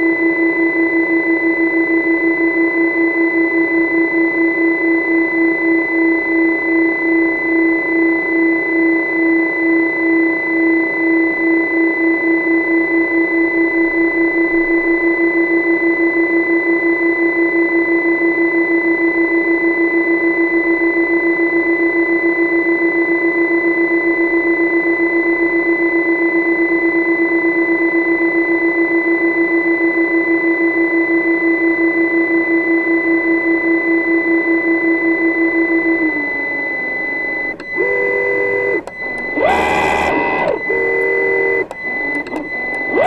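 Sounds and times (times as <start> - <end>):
pulsing machine hum: 35.6 - 43.0.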